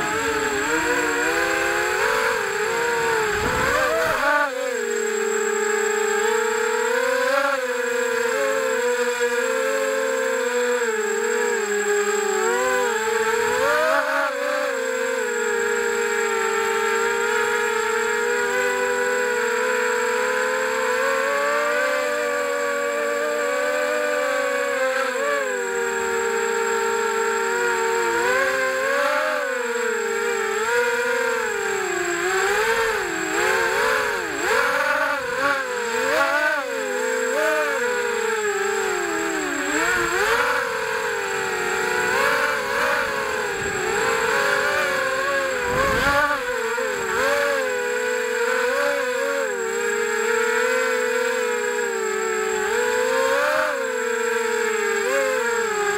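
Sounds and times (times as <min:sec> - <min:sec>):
quadcopter motors whining: 0:00.0 - 0:55.9.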